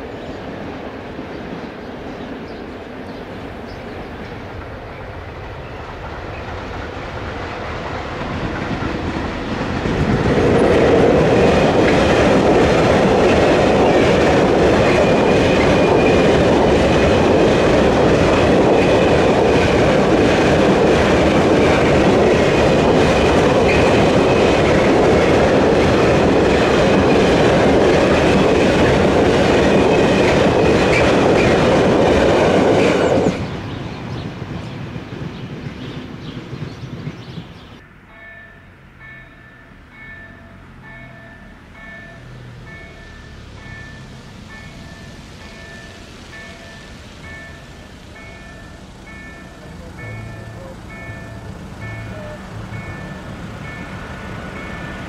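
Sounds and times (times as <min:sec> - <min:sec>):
freight train rumbling past: 0:00.0 - 0:55.0
wheels clattering over rails: 0:04.2 - 0:33.5
faint high ringing tone: 0:37.8 - 0:53.9.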